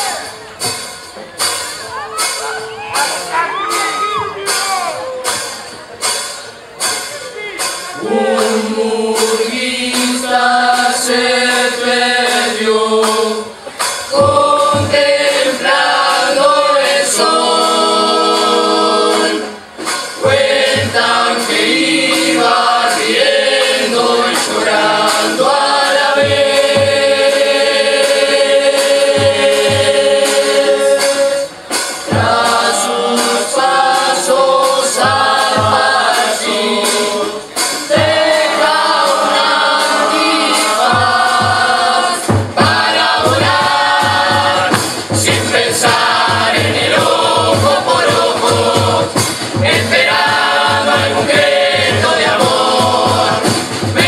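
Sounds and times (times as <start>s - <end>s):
chorus singing in harmony: 7.6s - 54.0s
bass drum: 20.2s - 31.4s, 32.0s - 54.0s.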